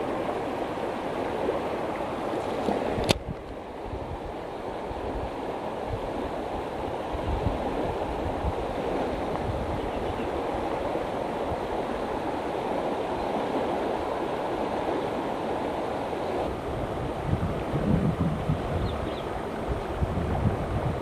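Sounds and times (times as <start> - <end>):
river rushing: 0.0 - 21.0
wind buffeting microphone: 2.7 - 12.2, 16.4 - 21.0.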